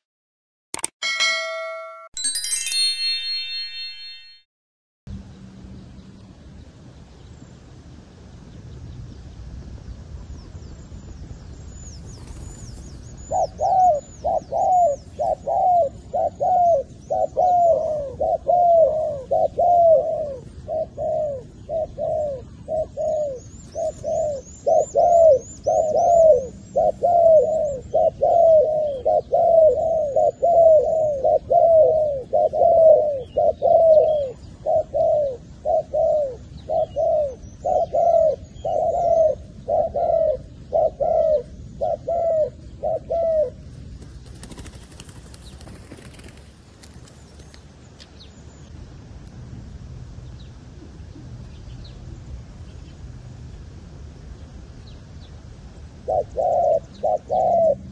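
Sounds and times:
doves cooing: 0:13.2 - 0:43.6, 0:56.1 - 0:57.9.

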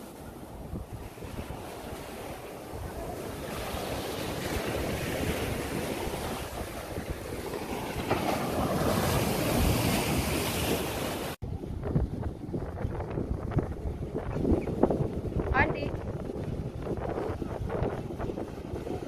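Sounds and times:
small waves breaking on beach: 0:00.0 - 0:12.0
wind buffeting microphone: 0:00.0 - 0:19.0.

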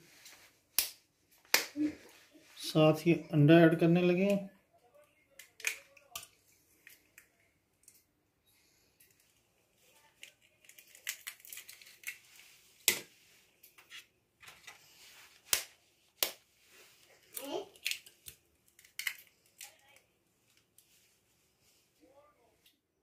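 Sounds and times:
eggshells cracking: 0:05.3 - 0:08.0, 0:10.2 - 0:12.2, 0:17.3 - 0:20.0.

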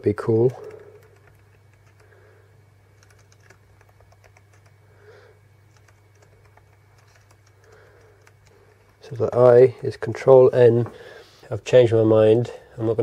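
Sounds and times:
low steady hum: 0:00.0 - 0:13.0
laptop keyboard typing: 0:00.2 - 0:02.2, 0:02.9 - 0:04.8, 0:05.7 - 0:09.2.

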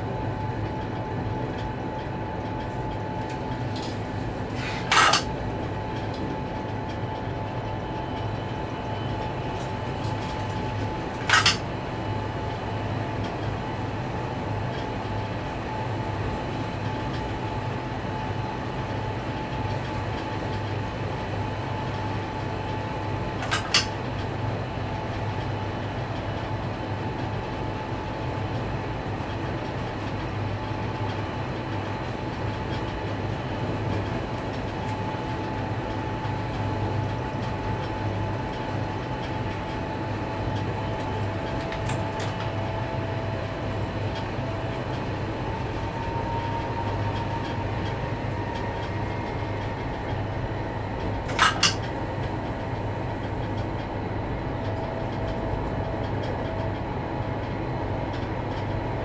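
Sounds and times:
locomotive cab drone: 0:00.0 - 0:59.0
sharp metallic clanks: 0:04.9 - 0:05.3, 0:11.3 - 0:11.6.

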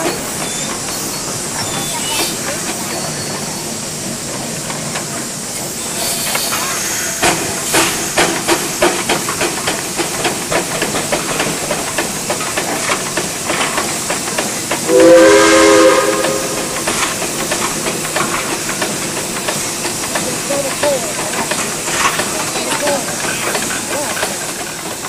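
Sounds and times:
steam hiss: 0:00.0 - 0:25.0
steam engine exhaust chuffing: 0:03.6 - 0:25.0
steam whistle blowing: 0:14.9 - 0:16.8.

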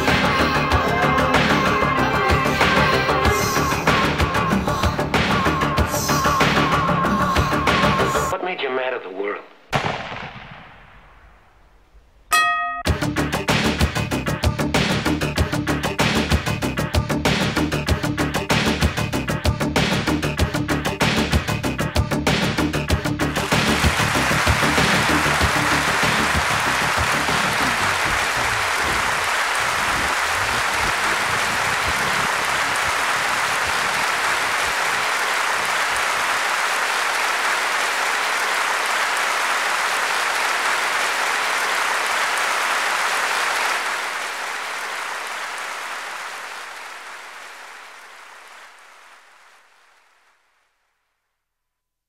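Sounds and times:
applause: 0:00.0 - 0:08.4, 0:23.2 - 0:51.0.

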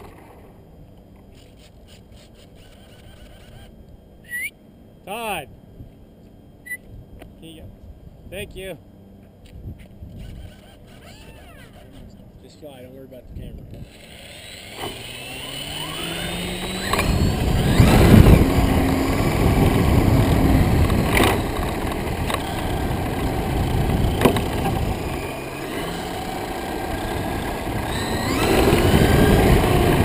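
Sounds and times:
model plane motor and propeller: 0:00.0 - 0:03.9, 0:10.0 - 0:30.0
prop wash buffeting microphone: 0:16.8 - 0:30.0.

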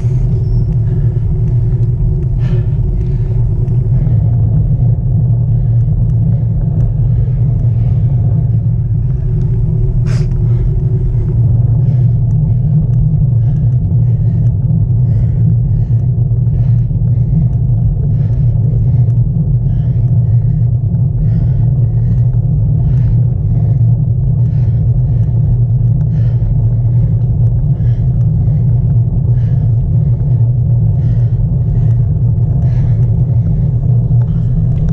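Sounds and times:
wind and road rumble: 0:00.0 - 0:34.9.

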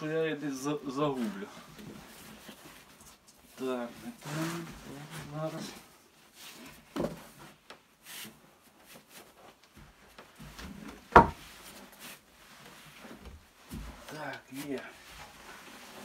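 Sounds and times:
felt liner rustling and rubbing: 0:00.2 - 0:16.0.

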